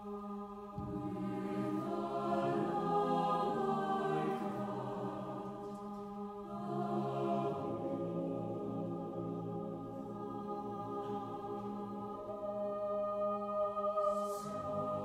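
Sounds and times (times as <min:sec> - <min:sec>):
mixed choir singing: 0:00.0 - 0:15.0.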